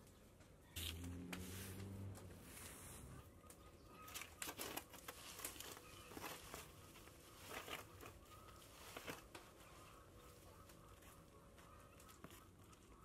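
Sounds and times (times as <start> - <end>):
broom sweeping dry debris: 0.8 - 3.2.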